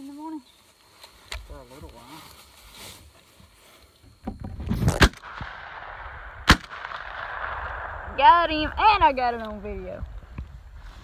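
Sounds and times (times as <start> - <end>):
rustle of movement: 0.0 - 11.0
shotgun shots: 4.8 - 9.0.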